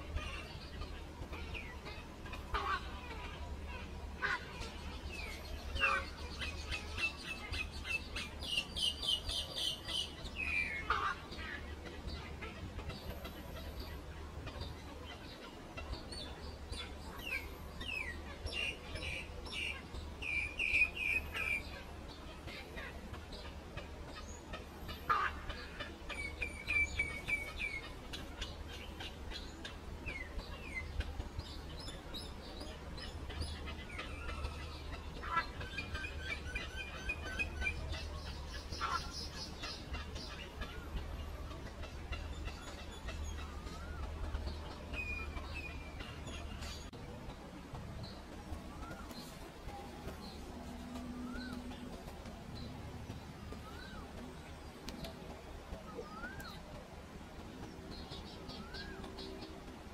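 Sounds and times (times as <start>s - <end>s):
bird singing harsh calls: 56.0s - 56.6s.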